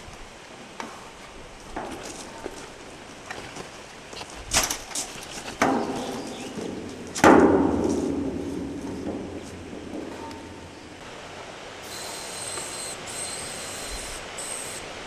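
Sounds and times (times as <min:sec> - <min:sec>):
metal ladder clanking on steel: 0:04.5 - 0:11.0.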